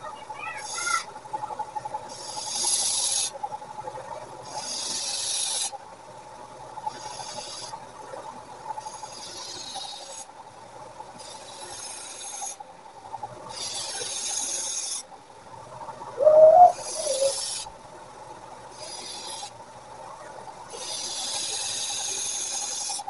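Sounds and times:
short wavering call: 16.2s - 17.4s.

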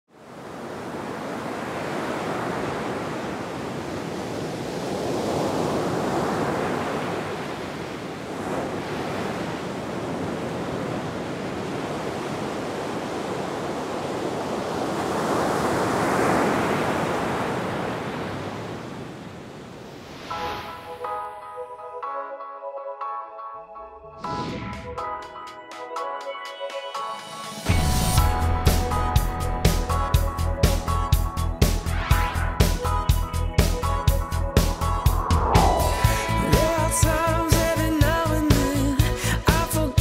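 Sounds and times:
waves washing onto shore: 0.1s - 21.0s.

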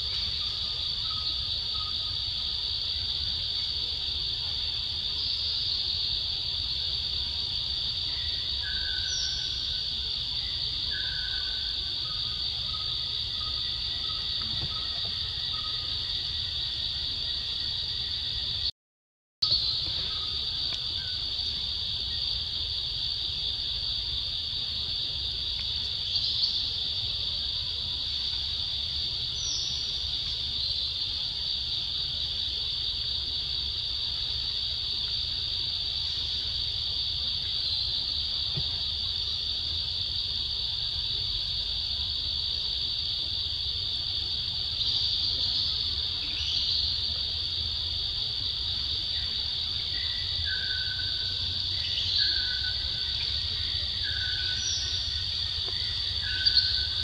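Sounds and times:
insects droning: 0.0s - 18.7s, 19.4s - 57.0s
bird chirps: 55.8s - 57.0s.

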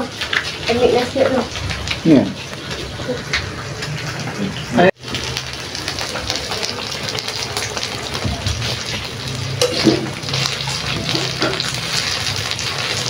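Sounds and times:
broth bubbling in a pot: 0.0s - 13.0s
metal spoon stirring soup: 6.1s - 12.3s.

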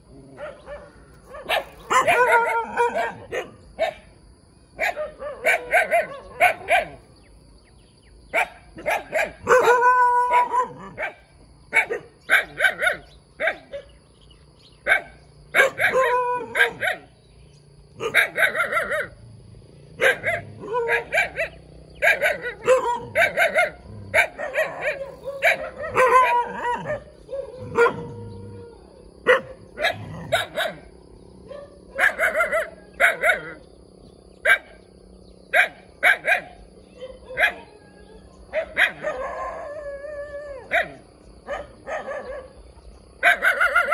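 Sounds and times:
puppy barking: 0.4s - 4.1s, 4.8s - 7.0s, 8.3s - 13.9s, 14.8s - 17.1s, 18.0s - 19.2s, 20.0s - 28.1s, 29.2s - 30.9s, 31.5s - 33.6s, 34.4s - 34.8s, 35.5s - 37.7s, 38.5s - 39.4s, 40.7s - 42.5s, 43.2s - 43.9s.

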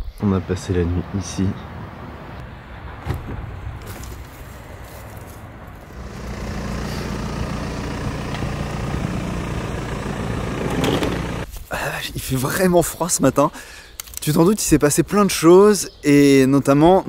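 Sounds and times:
vehicle engine humming: 1.8s - 11.5s.

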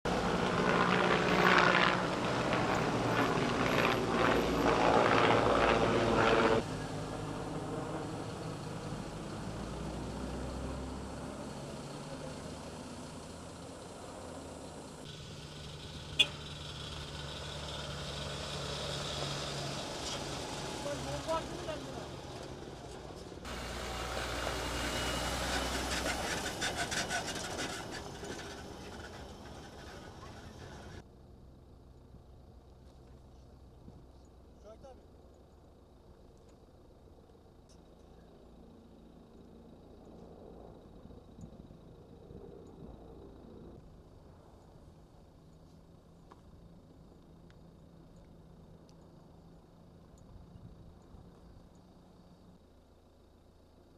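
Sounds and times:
truck engine hum: 0.0s - 53.9s
heavy vehicles passing: 0.1s - 31.0s
tyres on gravel: 19.1s - 31.1s.

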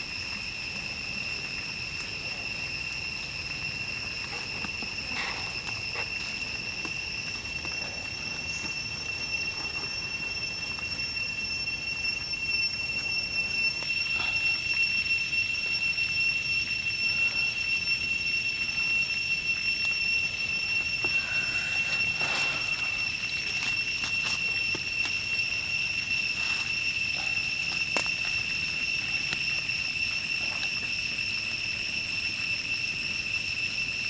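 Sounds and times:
campfire crackles: 0.0s - 34.0s
high-pitched insect whine: 0.0s - 34.0s.

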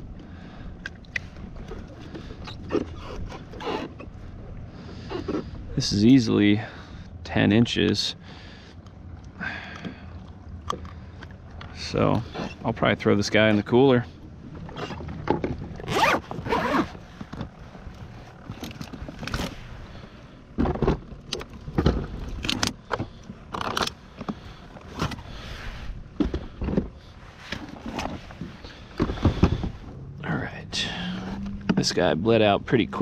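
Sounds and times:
cooler zipper being pulled: 15.8s - 17.0s.

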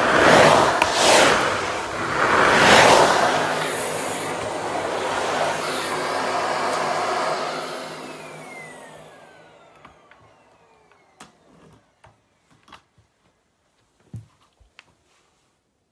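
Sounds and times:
vacuum cleaner running: 0.0s - 12.7s.

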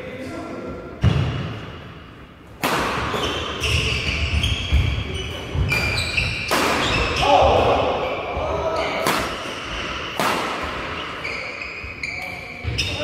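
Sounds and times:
racket hitting shuttlecock: 2.5s - 3.6s, 5.5s - 7.2s, 9.0s - 11.1s
shoes squeaking: 3.0s - 7.4s, 8.0s - 13.0s.

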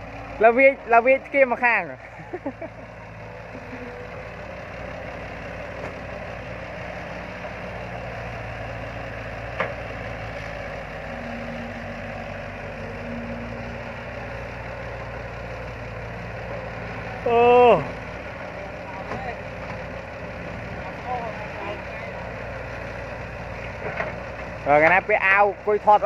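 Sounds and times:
excavator diesel engine running: 0.0s - 26.0s.

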